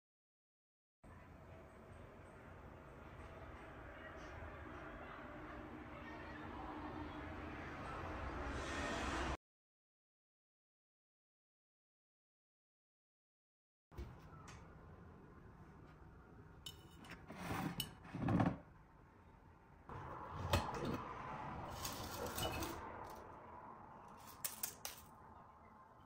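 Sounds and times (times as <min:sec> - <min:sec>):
dry leaves crackling: 0:21.6 - 0:23.3.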